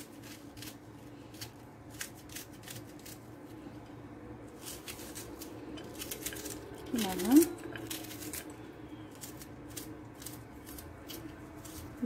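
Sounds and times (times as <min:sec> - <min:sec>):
faint steady hum: 0:00.0 - 0:12.0
knife slicing onion: 0:04.6 - 0:12.0.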